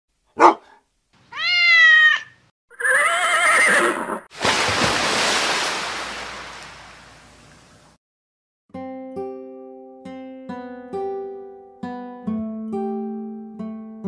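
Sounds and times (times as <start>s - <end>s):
cat meowing: 1.3s - 3.8s
horse whinnying: 1.3s - 4.3s
water rushing: 4.3s - 8.0s.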